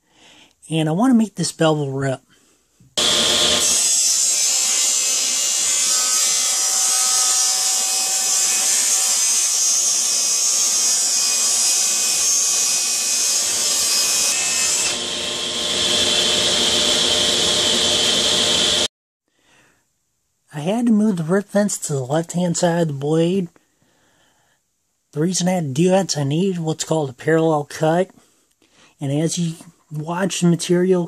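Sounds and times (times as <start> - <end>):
table saw cutting plywood: 3.0 - 18.9.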